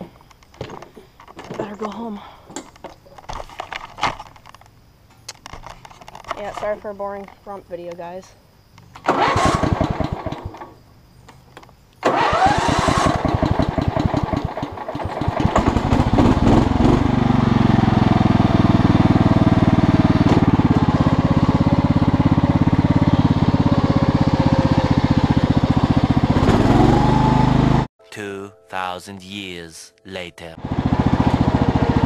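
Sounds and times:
engine starter cranking: 9.0s - 10.8s, 12.0s - 17.2s
small engine running: 9.1s - 10.6s, 12.0s - 27.9s, 30.6s - 32.0s.

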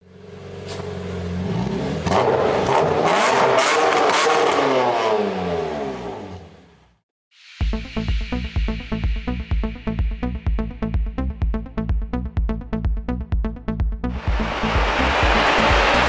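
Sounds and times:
car engine revving: 0.2s - 6.8s, 14.1s - 16.0s.

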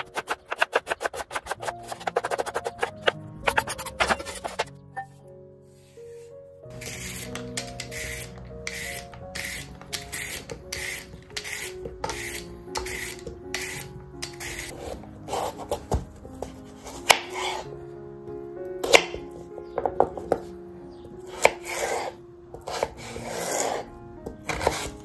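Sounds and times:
peeler scraping carrots: 0.0s - 4.7s, 6.7s - 15.8s, 21.3s - 25.0s
knife chopping on wooden board: 24.4s - 25.0s.

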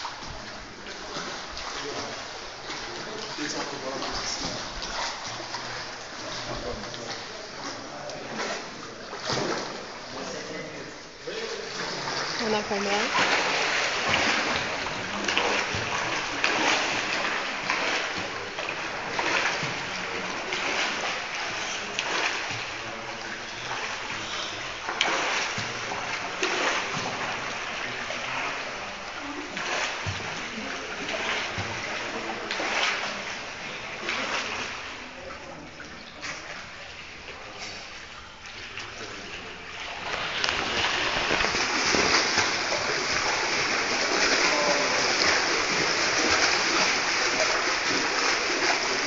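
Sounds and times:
pool water washing: 0.0s - 49.0s
water splashes: 0.0s - 49.0s.

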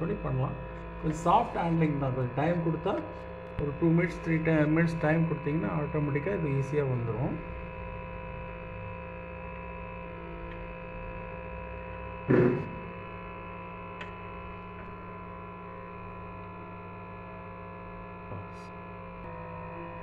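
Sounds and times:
steady electrical hum: 0.0s - 20.0s
sharp knock: 12.3s - 12.9s.

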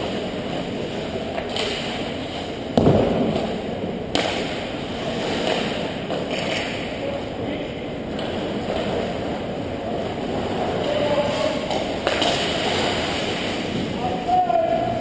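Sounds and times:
ice hockey game in echoing rink: 0.0s - 15.0s
heavy low thud: 2.8s - 3.4s.

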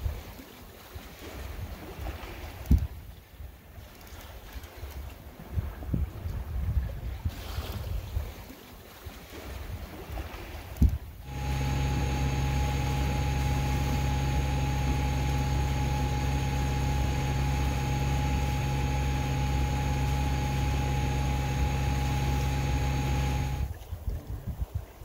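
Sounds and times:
engine droning: 11.2s - 23.8s.

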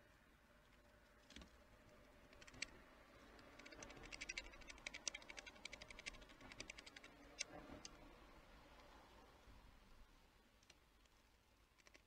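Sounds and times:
small animal pecking at food: 0.5s - 8.1s, 10.5s - 12.0s.

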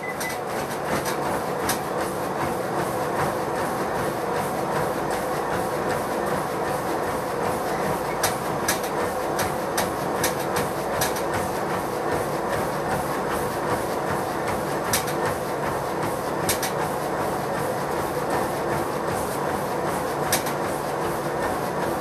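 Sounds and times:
footfalls on treadmill deck: 0.0s - 22.0s
treadmill belt and motor drone: 0.0s - 22.0s.

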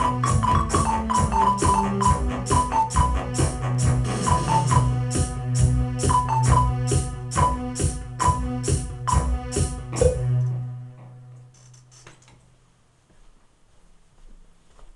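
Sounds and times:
synth tune with beat: 0.0s - 10.6s.

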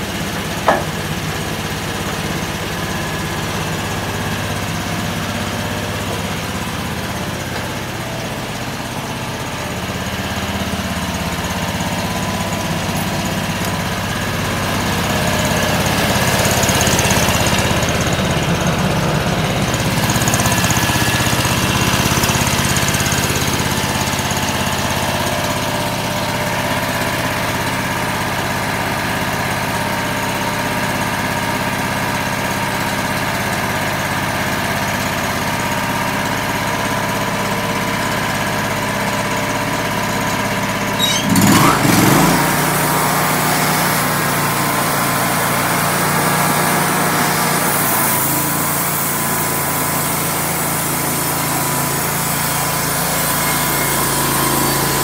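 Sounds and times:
sawmill engine running: 0.0s - 55.0s
band saw cutting log: 0.4s - 1.2s, 40.9s - 55.0s.

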